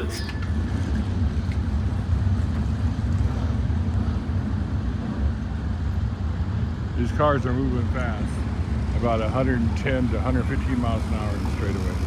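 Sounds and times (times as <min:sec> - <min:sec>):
race car engines rumbling: 0:00.0 - 0:12.0.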